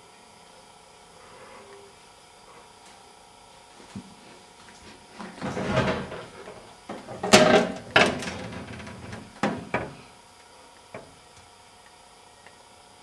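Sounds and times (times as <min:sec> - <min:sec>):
knocks and clatters: 0:05.2 - 0:10.0.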